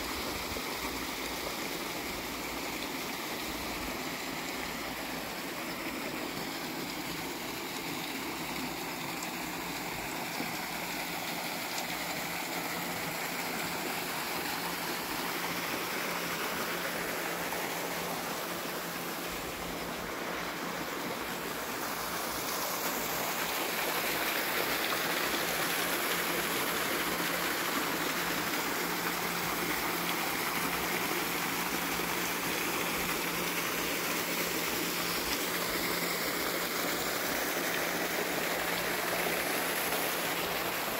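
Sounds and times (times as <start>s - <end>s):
small waterfall splashing: 0.0s - 40.9s.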